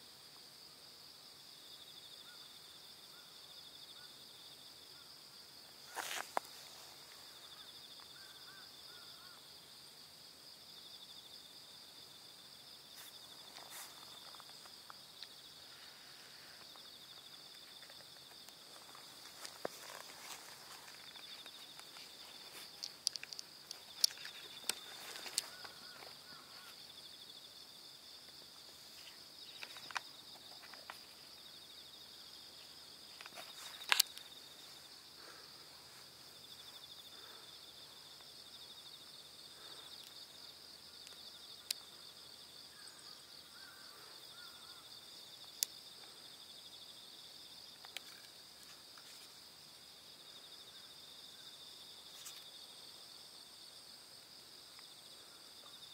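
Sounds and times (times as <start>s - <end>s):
insects chorus: 0.0s - 55.9s
sharp clicks and rustles: 17.6s - 26.2s, 33.1s - 34.3s.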